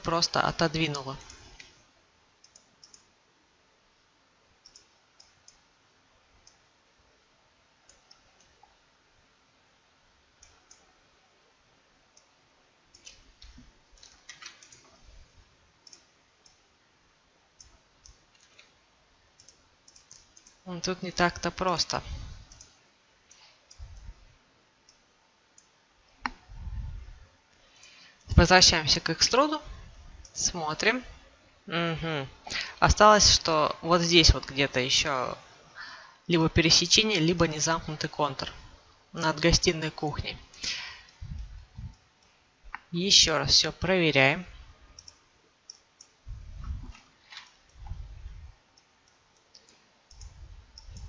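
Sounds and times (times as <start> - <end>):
computer mouse clicks: 0.9 - 1.8, 2.4 - 3.1, 4.6 - 5.6, 6.4 - 6.6, 7.9 - 8.7, 10.4 - 10.9, 12.1 - 12.3, 12.9 - 15.0, 15.8 - 16.6, 17.6 - 18.8, 19.4 - 20.6, 22.5 - 24.1, 45.0 - 48.0, 48.7 - 51.0
soft low thuds: 46.3 - 47.0.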